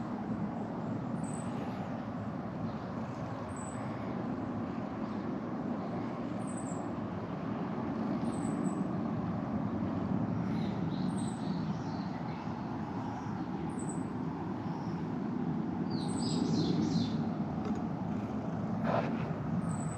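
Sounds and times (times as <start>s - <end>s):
birds chirping: 10.4s - 15.1s, 15.9s - 17.4s, 18.8s - 19.9s.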